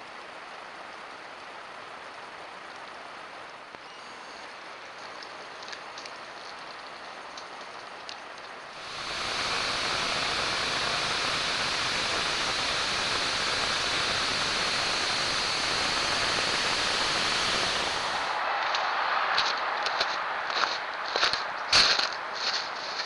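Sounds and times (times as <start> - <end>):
snowblower rushing noise: 8.8 - 18.6.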